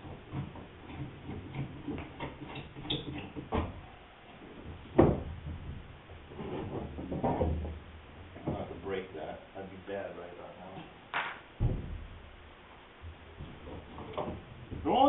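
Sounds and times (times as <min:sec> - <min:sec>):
sharp knock: 0:11.1 - 0:12.2.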